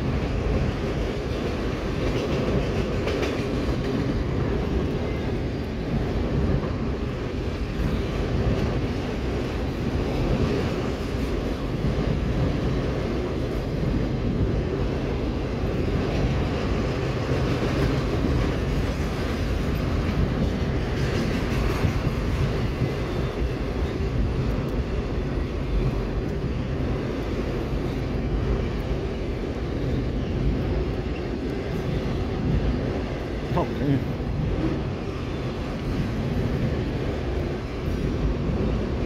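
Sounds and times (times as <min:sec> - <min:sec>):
freight train wheels rumbling on rails: 0:00.0 - 0:39.0.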